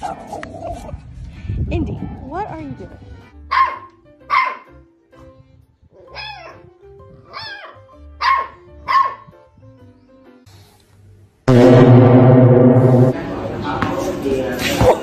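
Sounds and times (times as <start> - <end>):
background music: 1.8 - 10.5
puppy barking: 3.5 - 4.8, 6.0 - 6.6, 7.3 - 9.3.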